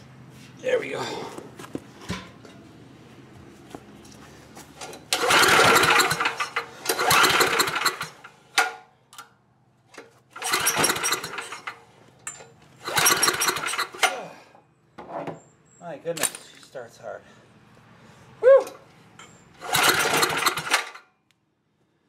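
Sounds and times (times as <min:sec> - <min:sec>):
generator engine pull-start cranking: 0:04.8 - 0:08.8, 0:09.9 - 0:14.3, 0:19.2 - 0:21.1.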